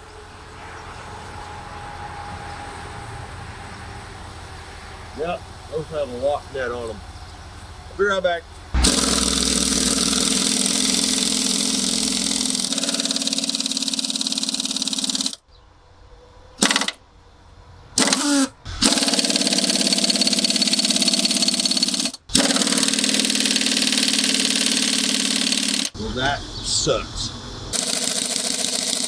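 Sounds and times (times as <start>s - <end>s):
pneumatic impact wrench hammering: 8.8s - 15.4s, 16.6s - 17.0s, 18.0s - 26.0s, 27.7s - 29.0s.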